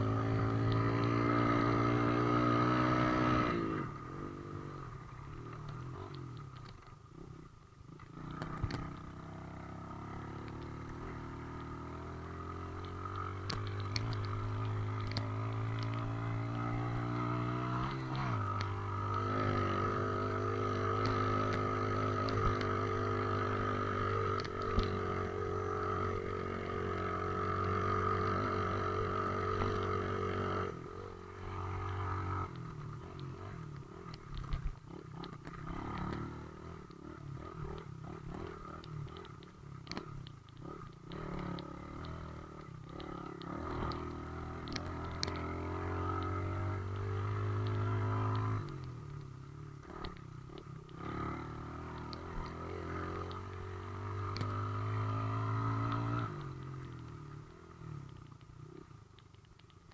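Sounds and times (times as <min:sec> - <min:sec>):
off-road vehicle engines: 0:00.0 - 0:59.9
sharp clicks and knocks: 0:08.0 - 0:09.1, 0:12.7 - 0:16.2, 0:32.4 - 0:59.9.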